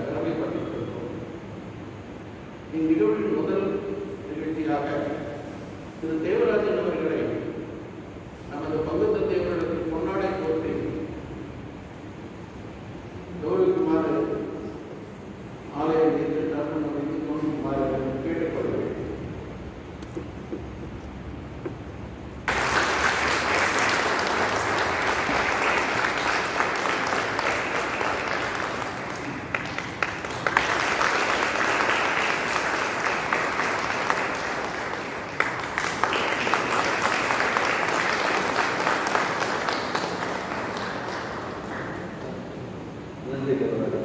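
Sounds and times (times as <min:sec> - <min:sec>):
audience clapping: 0:22.4 - 0:42.4.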